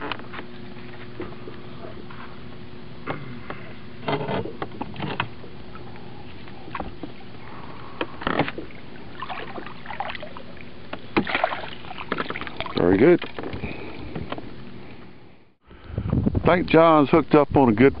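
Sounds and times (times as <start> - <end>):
steady low hum: 0.0 - 18.0
fish splashing at water surface: 8.6 - 13.4.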